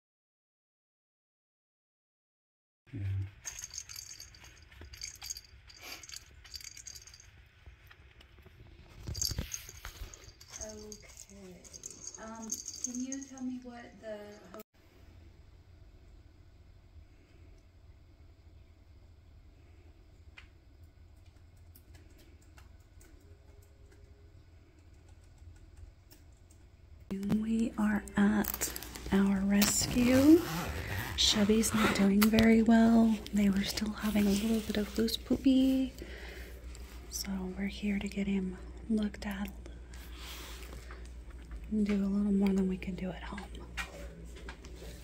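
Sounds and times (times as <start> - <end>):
low room hum: 2.9 - 45.0
jingle bell ball jingling: 3.3 - 7.4, 9.0 - 14.6.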